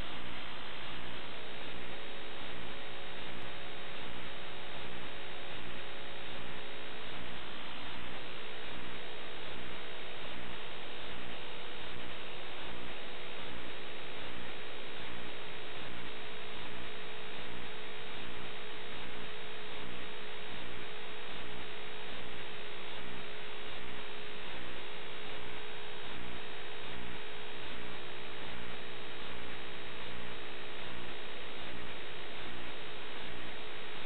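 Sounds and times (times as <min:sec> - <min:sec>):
constant tone: 0:00.0 - 0:34.0
electronic static hiss and hum: 0:00.0 - 0:34.0.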